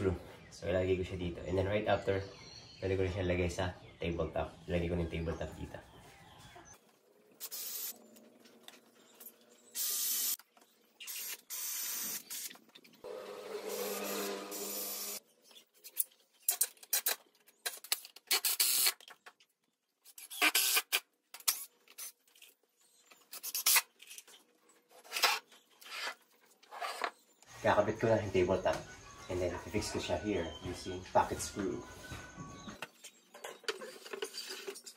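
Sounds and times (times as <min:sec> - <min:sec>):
cordless drill driving screws: 0:09.8 - 0:10.4, 0:11.0 - 0:15.2, 0:18.3 - 0:19.0, 0:20.2 - 0:21.7.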